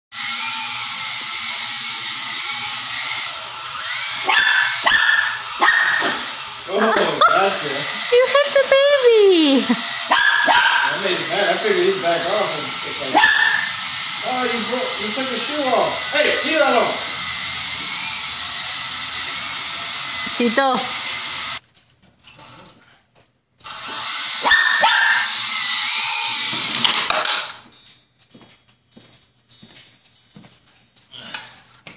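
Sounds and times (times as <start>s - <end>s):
toy helicopter rotor whining: 0.2s - 21.6s, 23.6s - 27.6s
small dog barking: 4.2s - 6.3s, 10.1s - 11.0s, 13.1s - 13.7s, 24.4s - 25.4s.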